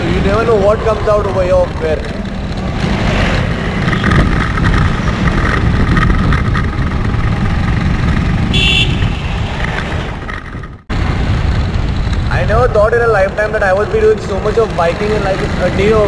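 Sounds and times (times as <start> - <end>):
motorcycle engine running: 0.0 - 9.2
wind buffeting microphone: 2.6 - 13.5.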